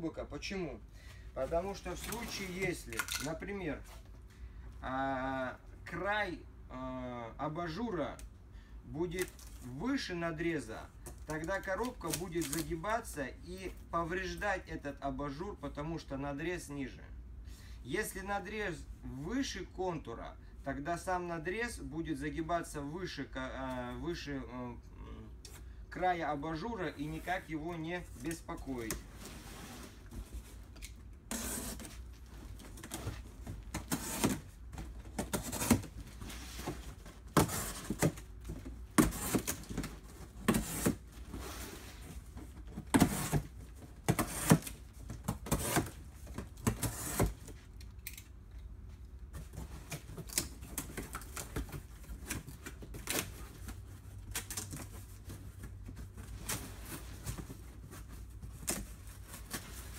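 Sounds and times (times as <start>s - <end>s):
cardboard crackling and scraping: 1.4s - 4.0s, 26.8s - 47.7s, 49.2s - 59.9s.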